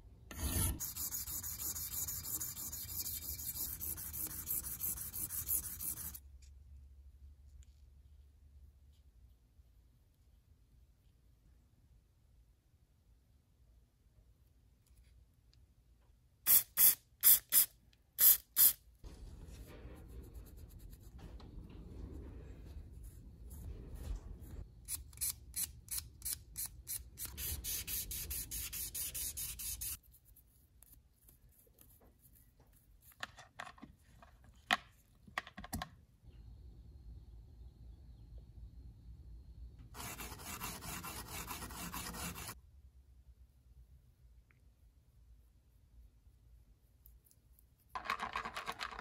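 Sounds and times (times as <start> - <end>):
brush scrubbing a steel washer: 0.8 - 6.2, 40.0 - 42.6.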